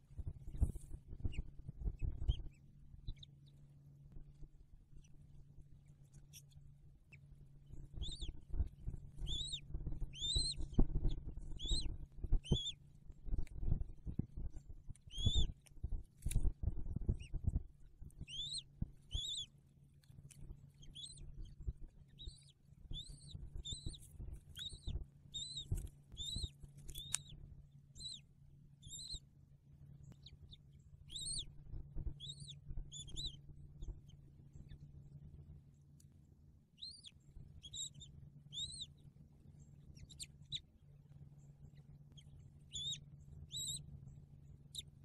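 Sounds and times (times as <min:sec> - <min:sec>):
steady low hum: 0:00.0 - 0:45.0
eaglet peeping: 0:00.2 - 0:29.3, 0:30.0 - 0:35.2, 0:36.7 - 0:45.0.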